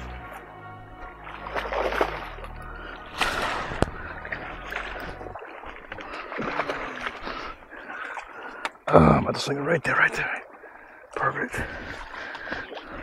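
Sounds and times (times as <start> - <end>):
fish splashing at water surface: 1.2 - 8.7.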